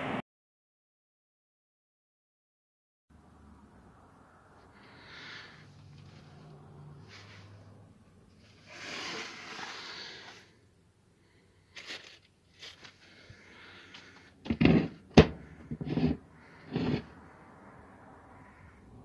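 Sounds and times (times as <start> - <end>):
rustling: 11.6 - 17.1.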